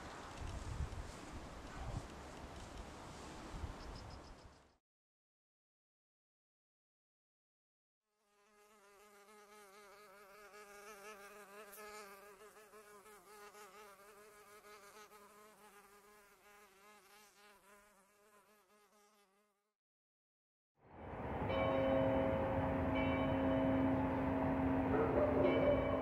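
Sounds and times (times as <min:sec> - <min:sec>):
housefly buzzing: 0:08.2 - 0:19.7.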